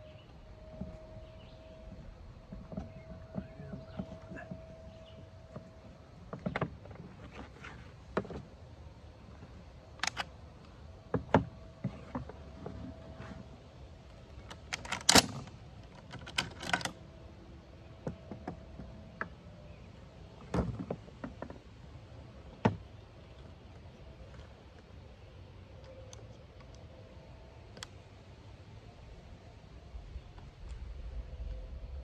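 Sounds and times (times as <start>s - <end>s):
metal clicks of rifle parts: 10.0s - 10.3s, 14.5s - 17.0s.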